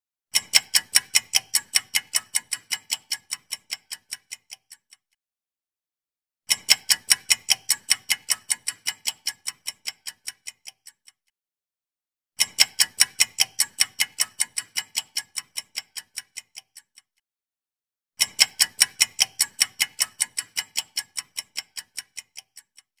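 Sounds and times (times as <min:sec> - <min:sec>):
rapid clock-like ticking: 0:00.3 - 0:05.1, 0:06.5 - 0:11.3, 0:12.4 - 0:17.2, 0:18.2 - 0:23.0.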